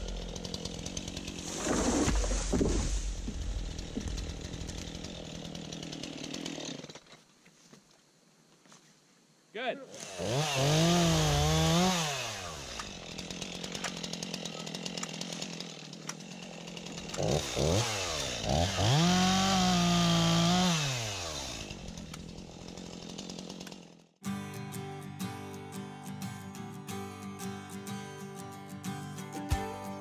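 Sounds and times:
chainsaw revving and idling: 0:00.0 - 0:07.2, 0:09.9 - 0:24.2.

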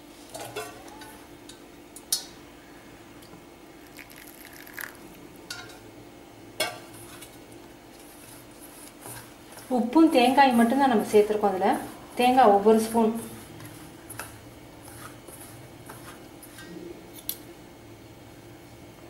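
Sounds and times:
hand rubbing flour in a bowl: 0:07.9 - 0:16.6.

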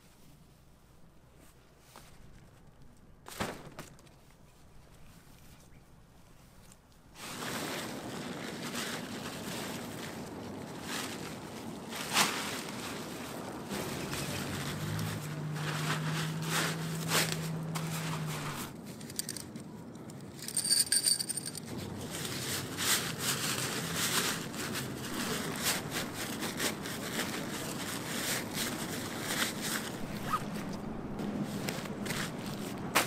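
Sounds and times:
tent fabric crinkling: 0:06.6 - 0:19.1, 0:21.4 - 0:33.0
low steady hum: 0:12.6 - 0:33.0.

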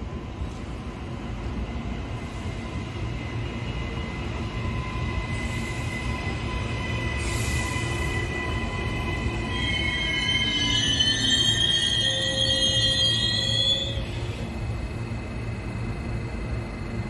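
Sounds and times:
train wheels rumbling on rails: 0:00.0 - 0:17.0
train wheel squeal: 0:02.2 - 0:15.2.

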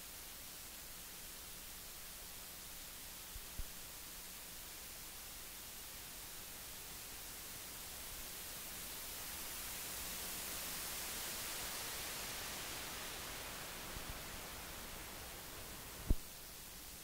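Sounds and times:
microphone static hiss: 0:00.0 - 0:17.0.

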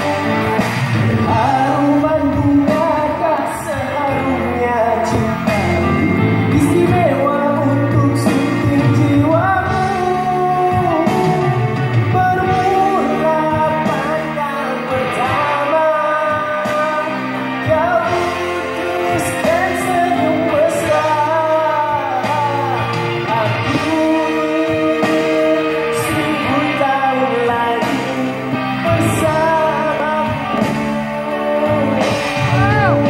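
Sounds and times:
instrumental backing track: 0:00.0 - 0:33.0
man singing into a microphone: 0:00.0 - 0:33.0.

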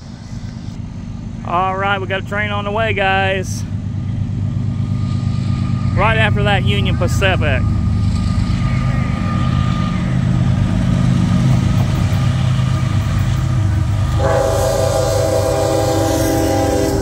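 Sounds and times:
diesel locomotive rumble: 0:00.0 - 0:17.0
train air horn: 0:14.1 - 0:17.0.

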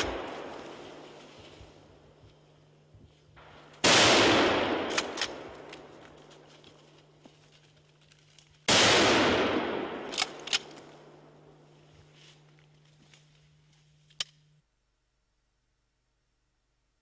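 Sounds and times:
rifle shots echoing: 0:00.0 - 0:01.1, 0:03.4 - 0:06.1, 0:08.7 - 0:11.6.

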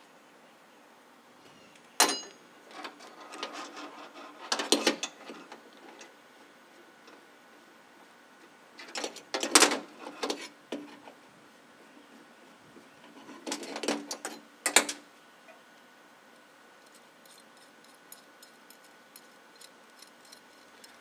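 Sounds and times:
sharp metal clink: 0:02.0 - 0:02.4.

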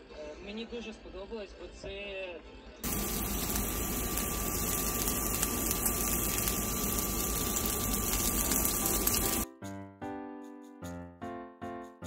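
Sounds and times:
piano-like keyboard music: 0:02.8 - 0:12.0.

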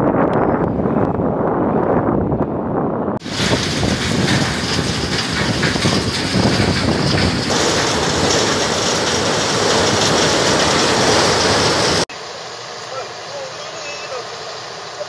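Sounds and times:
excavator tipping rock into hopper: 0:03.2 - 0:12.0
feeder and conveyor running: 0:03.2 - 0:15.0.

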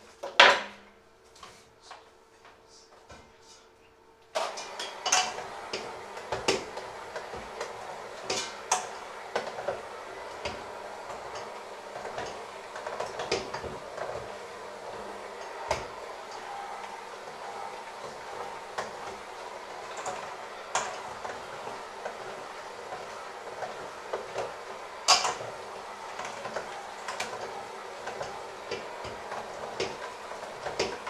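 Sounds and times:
electric hand mixer running: 0:04.4 - 0:31.0
beaters clattering against bowl: 0:18.0 - 0:31.0.

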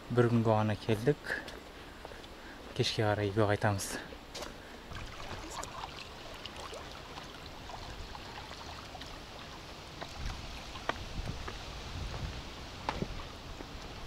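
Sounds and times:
water lapping against rocks: 0:04.2 - 0:12.2.

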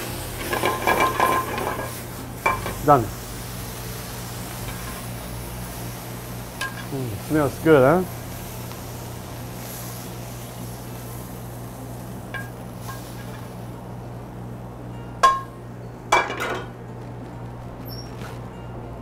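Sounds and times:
kitchen ventilation hum: 0:00.0 - 0:19.0
frying pan and utensil clinking: 0:00.4 - 0:02.8, 0:06.6 - 0:06.9, 0:12.3 - 0:13.4, 0:15.2 - 0:16.8
sharp ringing clank: 0:15.0 - 0:15.6.

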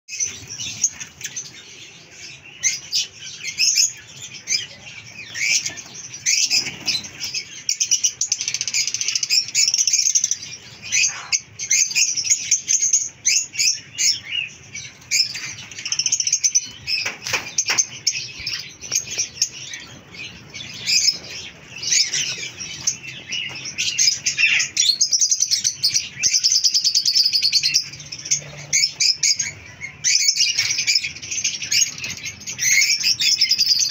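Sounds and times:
lovebirds chirping: 0:00.1 - 0:33.9
wings fluttering: 0:05.4 - 0:07.6, 0:16.9 - 0:19.9.

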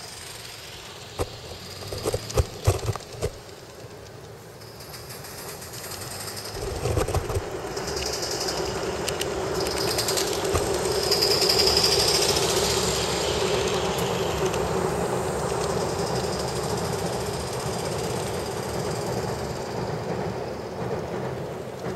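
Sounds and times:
model train wheels clattering: 0:00.0 - 0:21.9.

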